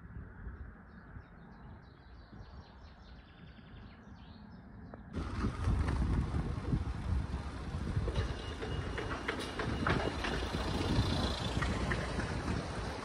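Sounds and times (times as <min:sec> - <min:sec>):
street and riding noise: 0:00.0 - 0:13.0
wind rumble on microphone: 0:00.0 - 0:13.0
small birds chirping: 0:00.6 - 0:05.2.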